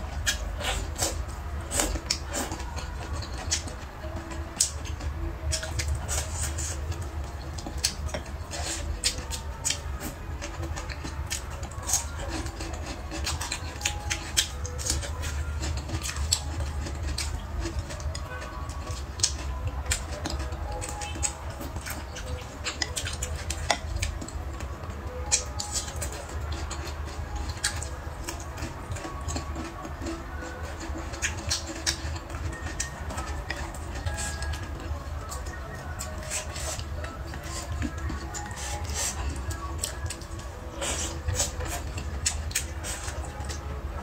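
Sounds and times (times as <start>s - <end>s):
background music: 0.0s - 44.0s
close chewing and lip smacks: 0.0s - 44.0s.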